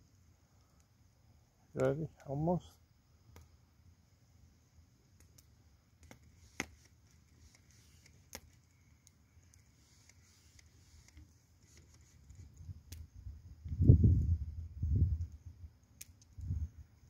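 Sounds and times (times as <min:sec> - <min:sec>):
wood fire crackling and popping: 0:03.2 - 0:03.6, 0:05.0 - 0:16.7.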